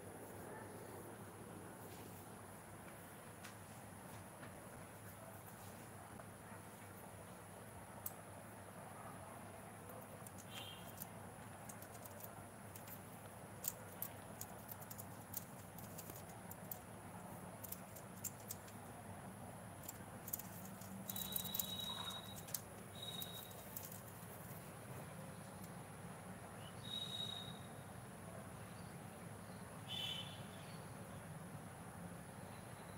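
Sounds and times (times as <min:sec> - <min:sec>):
parakeet beak and claws clicking on plastic: 0:09.9 - 0:18.9, 0:19.7 - 0:25.8
thin high whistle: 0:21.1 - 0:23.5, 0:26.8 - 0:27.8, 0:29.9 - 0:30.4.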